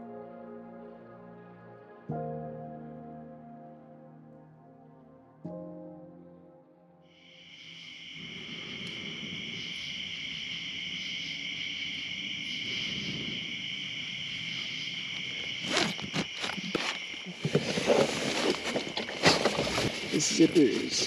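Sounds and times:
night insects droning: 7.1s - 21.0s
tent fabric rustling: 15.2s - 21.0s.

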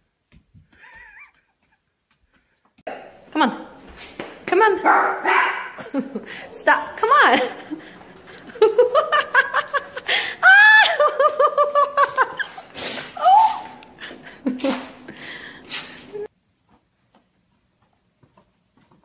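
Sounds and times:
person laughing hard: 0.8s - 1.8s, 7.4s - 15.3s.

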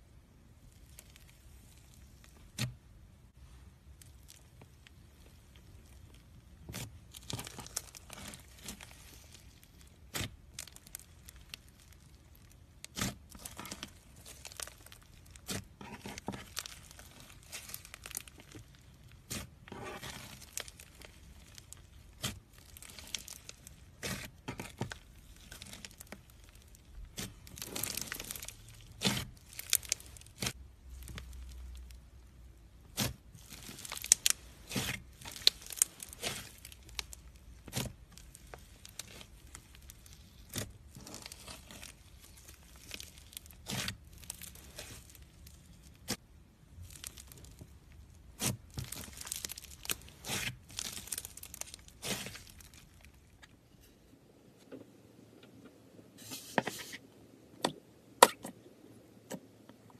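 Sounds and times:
slime tearing and crackling: 0.6s - 2.8s, 3.8s - 53.4s
slime air pockets popping: 48.3s - 52.7s.

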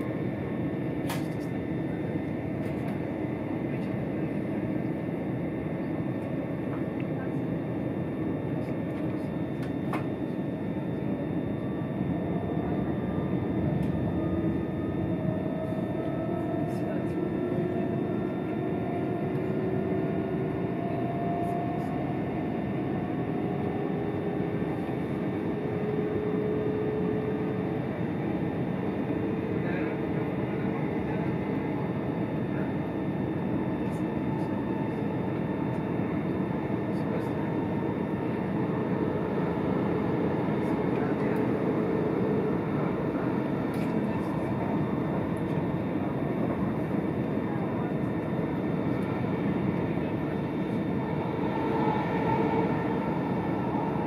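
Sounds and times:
faint rising whine: 50.0s - 54.0s
train wheels rumbling on track: 50.8s - 54.0s.

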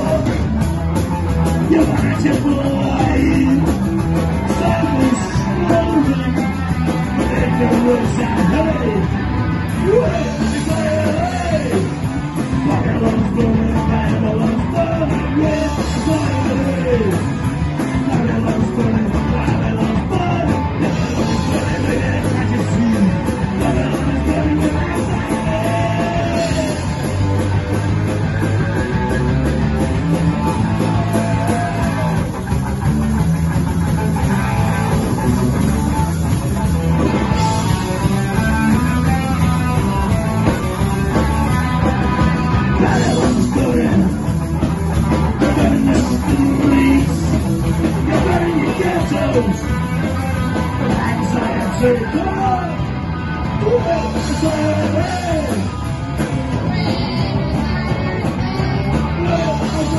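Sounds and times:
person singing lead vocal: 0.0s - 0.6s, 1.6s - 27.4s, 30.7s - 32.3s, 42.4s - 52.9s, 53.5s - 55.8s, 56.5s - 59.9s
punk rock band playing: 0.0s - 59.9s.

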